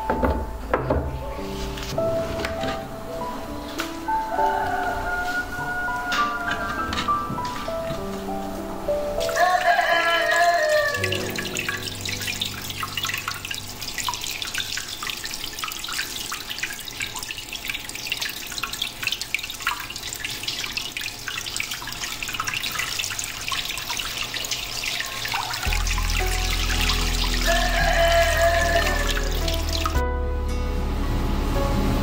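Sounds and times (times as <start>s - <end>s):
running water splashing: 3.6s - 30.0s
water pattering on wet surface: 9.2s - 30.0s.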